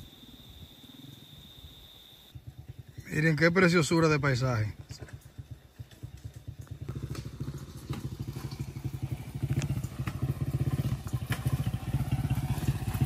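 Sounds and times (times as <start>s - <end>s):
small motorcycle engine: 2.2s - 13.0s
bike knocks and rattles: 4.7s - 13.0s.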